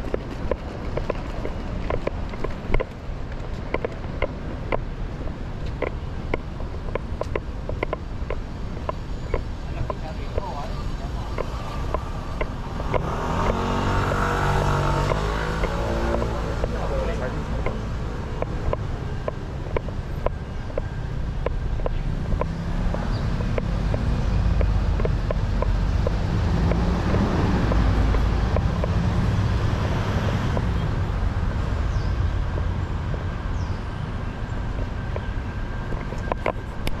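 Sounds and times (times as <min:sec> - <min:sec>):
vehicle engine rumble passing: 0:08.7 - 0:37.0.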